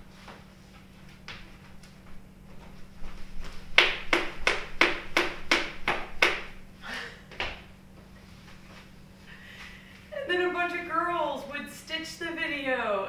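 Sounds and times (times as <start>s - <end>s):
hand claps: 3.8s - 6.6s.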